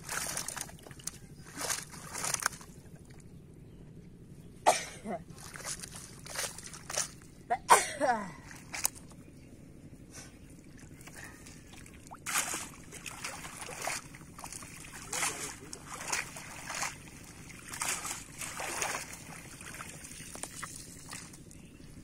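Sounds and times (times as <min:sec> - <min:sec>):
net splashing in water: 0:00.0 - 0:02.8, 0:05.4 - 0:07.2, 0:11.7 - 0:21.4.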